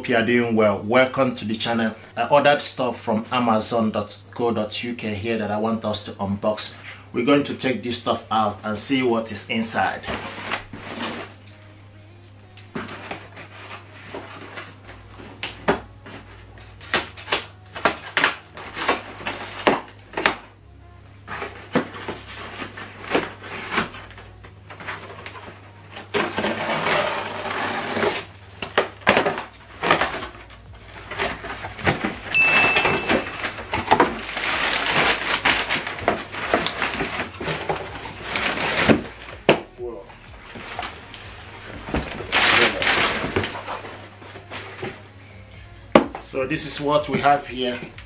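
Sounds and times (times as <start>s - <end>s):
cardboard scraping: 8.9s - 11.6s, 12.7s - 20.5s, 21.2s - 32.4s, 33.4s - 45.0s
packing paper rustling: 12.6s - 20.4s, 21.2s - 45.0s.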